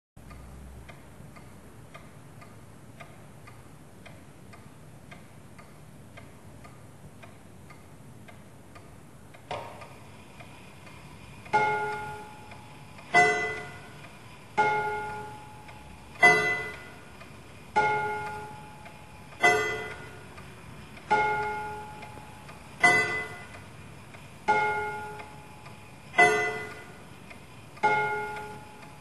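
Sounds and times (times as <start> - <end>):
clock striking on gongs: 11.5 - 18.8, 19.4 - 20.4, 21.1 - 23.6, 24.5 - 27.0, 27.8 - 29.0.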